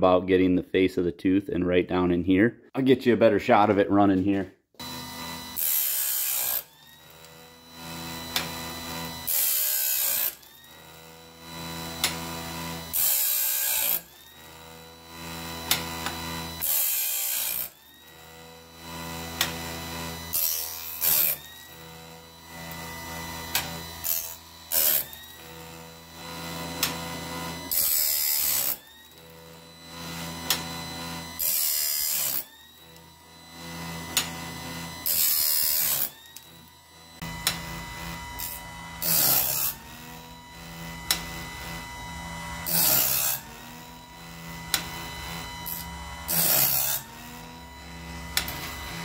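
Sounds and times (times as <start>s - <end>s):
grinder motor whining: 4.7s - 49.0s
grinding wheel hissing on metal: 11.5s - 14.1s, 18.8s - 28.8s, 29.4s - 49.0s.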